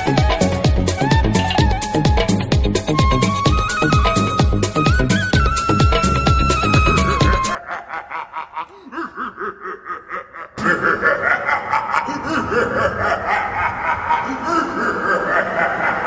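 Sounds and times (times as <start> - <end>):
music track: 0.0 - 7.6
rhythmic laughter: 6.9 - 16.0.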